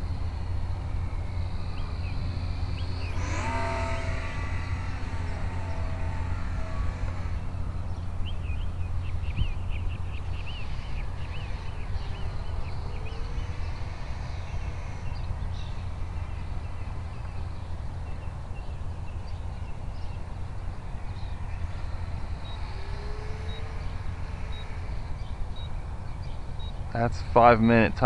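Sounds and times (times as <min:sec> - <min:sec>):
faint bird chirps: 0:00.0 - 0:28.0
wind buffeting microphone: 0:00.0 - 0:28.0.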